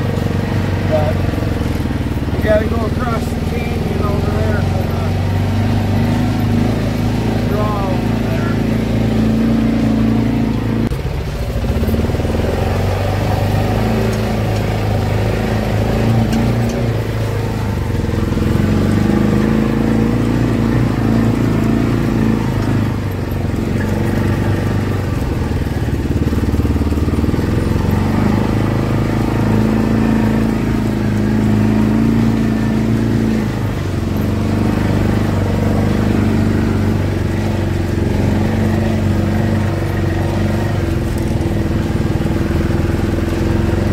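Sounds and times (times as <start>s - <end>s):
utility vehicle engine droning: 0.0s - 43.9s.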